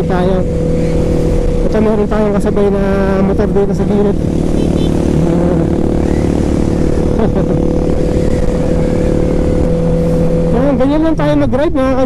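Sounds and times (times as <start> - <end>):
motorcycle engine cruising: 0.0 - 12.0
wind rushing: 0.4 - 2.4.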